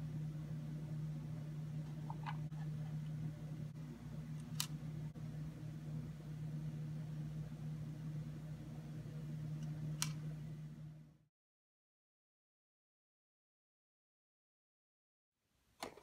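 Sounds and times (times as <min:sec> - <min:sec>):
steady low background hum: 0:00.0 - 0:11.3.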